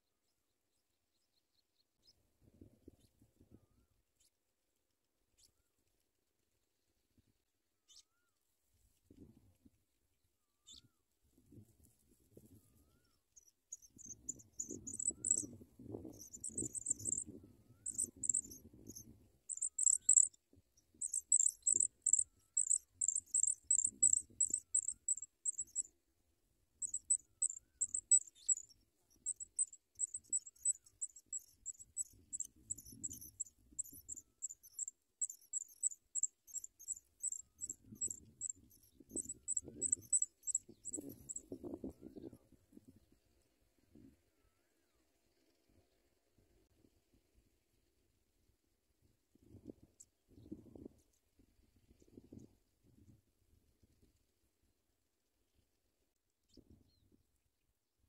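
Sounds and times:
nestlings cheeping: 14.0s - 15.5s, 16.2s - 20.4s, 21.0s - 25.9s, 26.8s - 41.4s.

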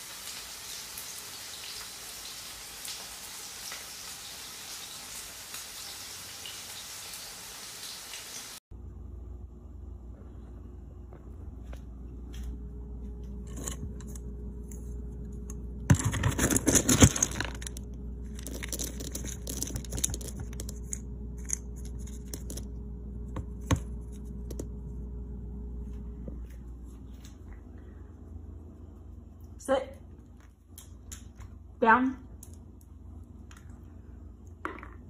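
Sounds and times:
dry kibble rattling in plastic bin: 15.9s - 20.7s.

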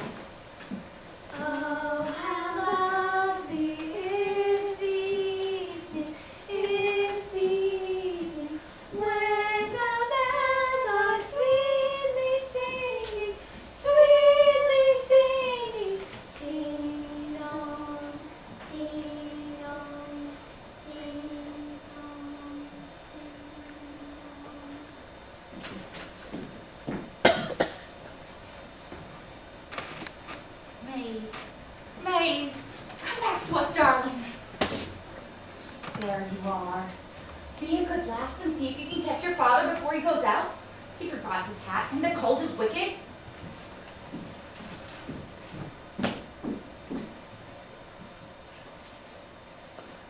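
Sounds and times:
girl singing unaccompanied: 1.3s - 25.2s.

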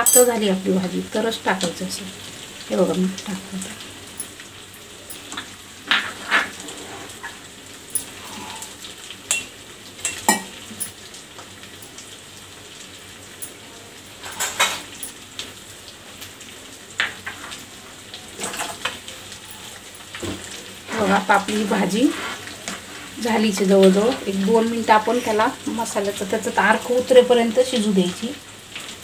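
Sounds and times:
curry boiling in pot: 0.4s - 29.0s.

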